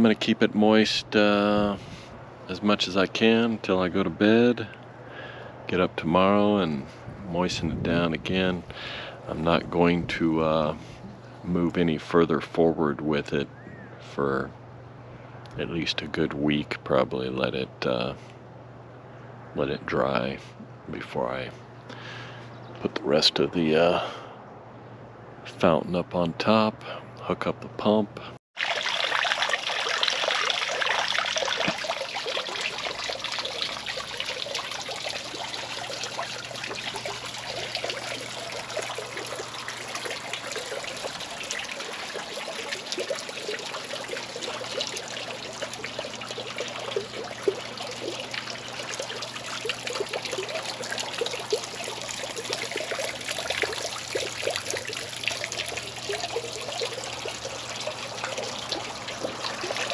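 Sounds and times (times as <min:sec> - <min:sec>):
fountain water trickling and splashing: 0:28.6 - 0:59.9.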